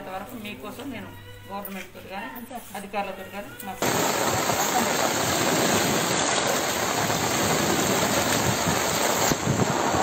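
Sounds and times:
heavy rain: 3.8s - 10.0s.

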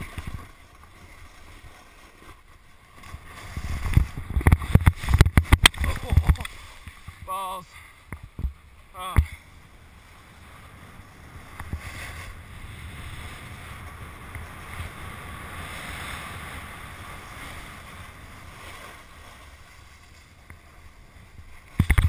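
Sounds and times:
wind rumbling on microphone: 3.0s - 7.3s, 9.4s - 22.0s.

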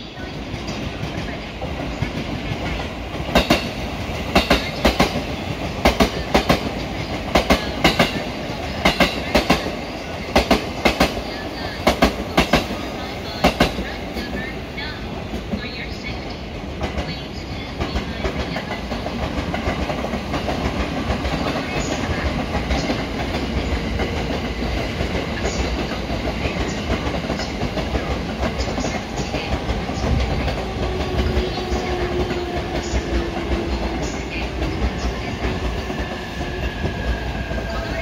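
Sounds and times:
train rumble: 0.0s - 38.0s
train wheels clicking over rail joints: 0.6s - 13.8s.

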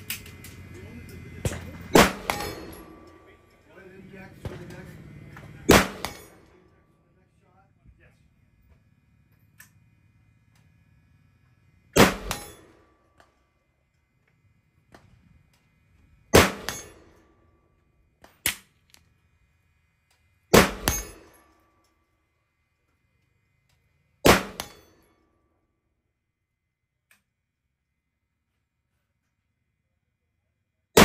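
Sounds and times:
gunshots with echo: 1.4s - 3.2s, 5.7s - 6.4s.

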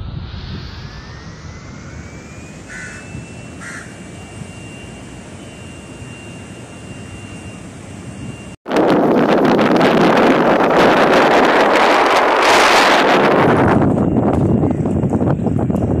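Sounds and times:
low rushing rumble: 0.0s - 6.3s
thin high whine: 0.0s - 16.0s
crow cawing: 2.7s - 4.0s.

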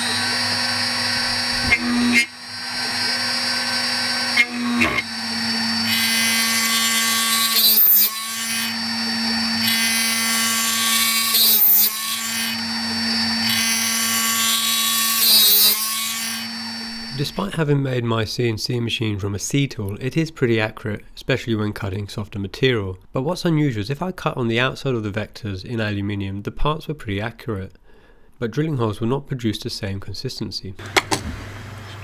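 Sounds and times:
drill bit plunging into metal: 0.0s - 17.2s
machine spindle running: 0.0s - 17.4s.

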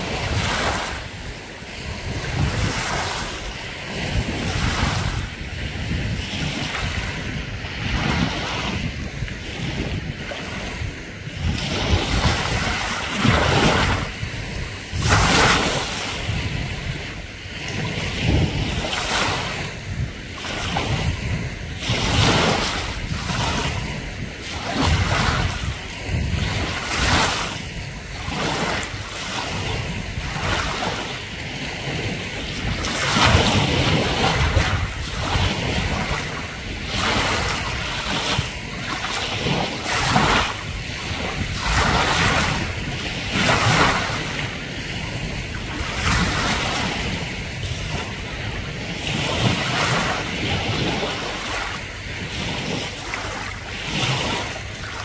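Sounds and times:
choppy sea water splashing: 0.0s - 55.0s.

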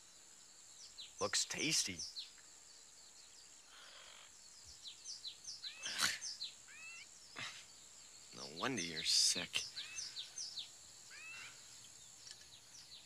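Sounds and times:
birds chirping: 0.0s - 13.0s
sliding bird calls: 11.1s - 12.6s.

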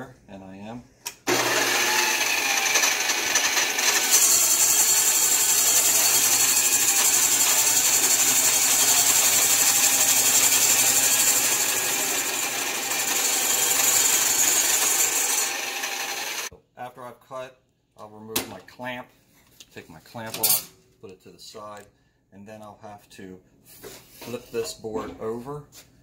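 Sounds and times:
drill press motor humming: 1.3s - 16.5s
hole saw cutting wood: 1.3s - 16.5s.

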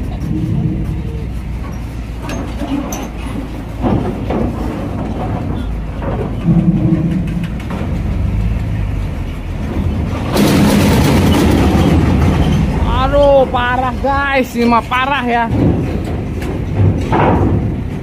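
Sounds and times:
truck diesel engines rumbling: 0.0s - 18.0s
loud rushing scrape: 9.6s - 13.5s
metallic knocks from ramp: 15.5s - 18.0s.

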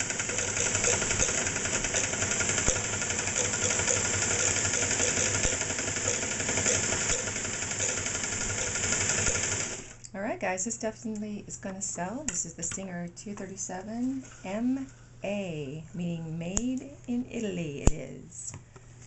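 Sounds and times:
sewing machine clattering: 0.0s - 9.9s.

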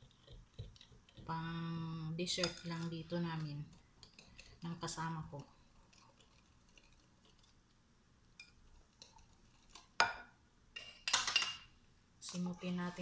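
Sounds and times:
whisk stirring in glass bowl: 2.4s - 7.6s, 8.4s - 10.0s.

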